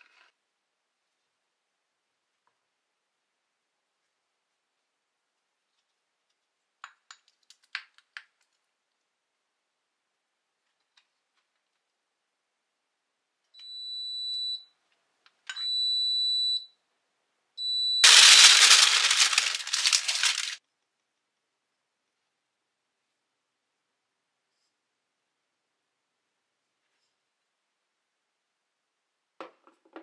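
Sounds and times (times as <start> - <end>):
loud rattling rush: 18.0 - 20.6.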